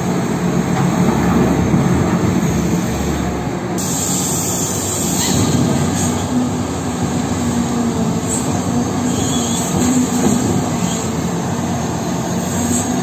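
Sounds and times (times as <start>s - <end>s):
excavator engine drone: 0.0s - 13.0s
high hiss: 3.8s - 6.2s.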